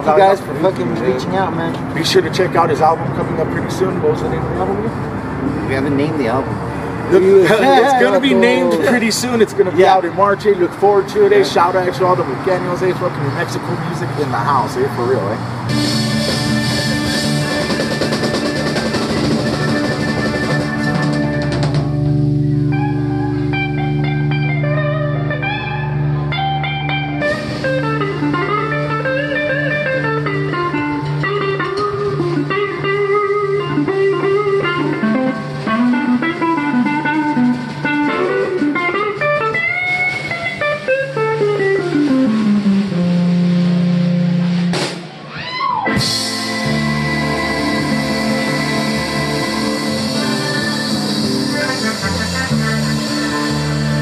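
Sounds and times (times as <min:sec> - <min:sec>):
electric guitar lead with bends: 0:00.0 - 0:54.0
drums: 0:15.4 - 0:54.0
steady low bass: 0:41.8 - 0:44.8, 0:46.0 - 0:54.0.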